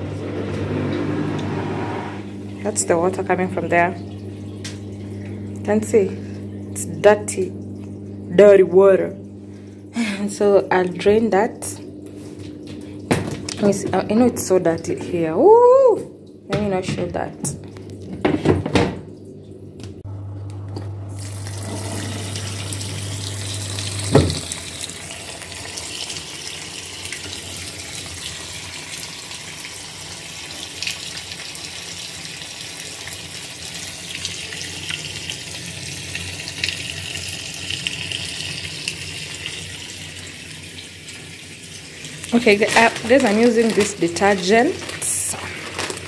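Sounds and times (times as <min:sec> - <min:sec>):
low hum: 0:00.0 - 0:25.7
water draining: 0:00.0 - 0:46.0.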